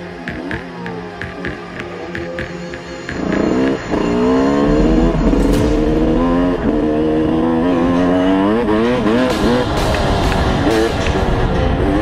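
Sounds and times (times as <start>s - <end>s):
music with a steady beat: 0.0s - 8.0s, 8.6s - 12.0s
dirt bike engine revving: 3.0s - 12.0s.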